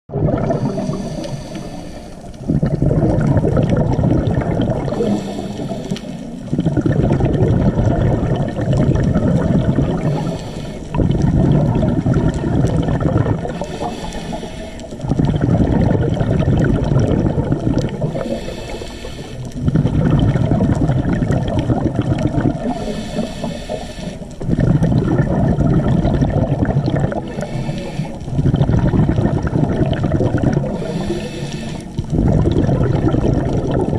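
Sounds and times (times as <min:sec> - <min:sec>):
exhaled bubbles rushing: 0:00.0 - 0:33.9
regulator inhale hiss: 0:00.5 - 0:02.5, 0:04.9 - 0:06.5, 0:10.0 - 0:11.0, 0:13.5 - 0:15.1, 0:18.1 - 0:19.6, 0:22.6 - 0:24.4, 0:27.2 - 0:28.4, 0:30.6 - 0:32.1.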